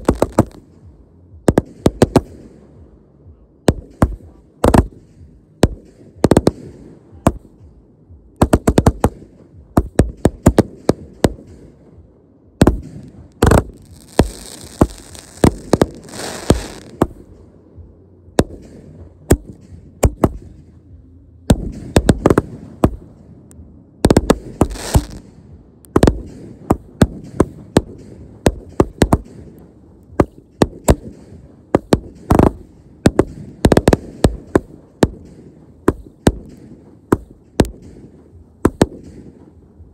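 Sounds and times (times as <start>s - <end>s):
fireworks launches and bursts: 0.0s - 2.8s, 3.6s - 7.6s, 8.4s - 12.0s, 12.6s - 17.5s, 18.4s - 20.8s, 21.5s - 23.2s, 24.0s - 39.6s
fireworks high hissing: 12.9s - 17.2s, 24.4s - 25.2s.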